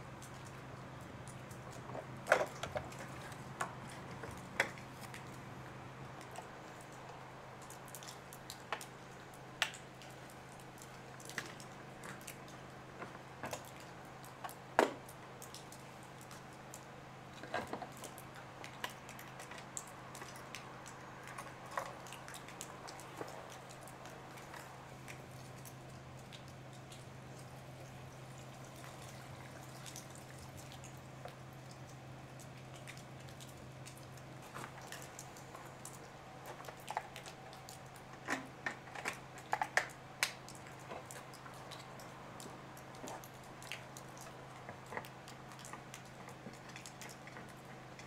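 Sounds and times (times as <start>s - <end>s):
steady low hum: 0.0s - 48.0s
clicks and knocks of handling: 1.5s - 5.4s, 17.4s - 20.4s, 38.1s - 41.2s.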